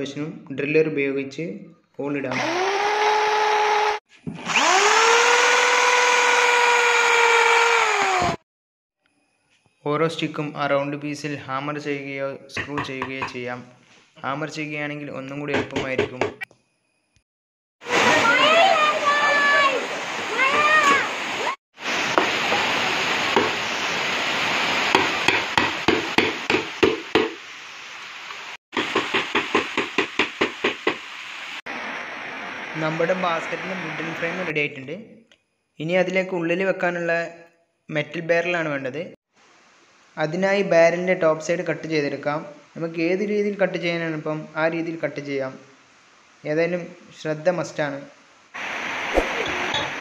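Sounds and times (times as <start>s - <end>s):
electric drill boring into wood: 2.3s - 8.4s
hammer tapping wood: 12.6s - 13.4s, 25.0s - 27.4s, 28.8s - 31.0s.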